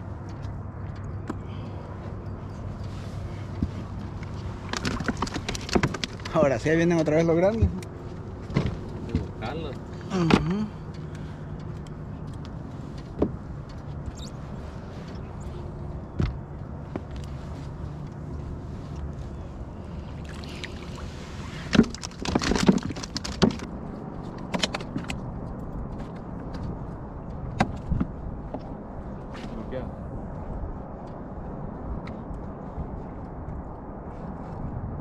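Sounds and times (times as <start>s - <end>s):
fishing tackle knocks and rattles: 4.6s - 6.4s, 21.6s - 25.3s.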